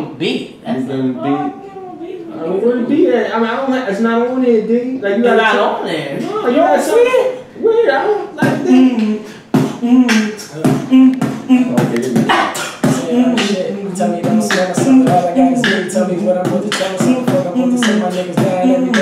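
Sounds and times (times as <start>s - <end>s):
beatboxing: 8.3s - 19.0s
higher hummed line: 8.4s - 19.0s
hummed bassline: 8.4s - 19.0s.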